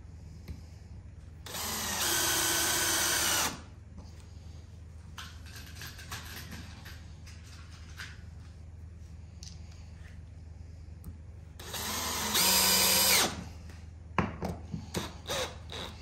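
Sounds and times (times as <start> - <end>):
cordless drill driving screw: 1.5 - 3.6, 11.6 - 13.4.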